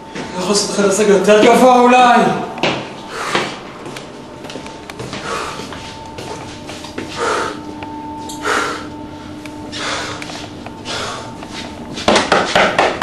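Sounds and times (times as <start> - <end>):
person breathing heavily: 3.0 - 3.6, 5.0 - 6.0, 7.0 - 12.1.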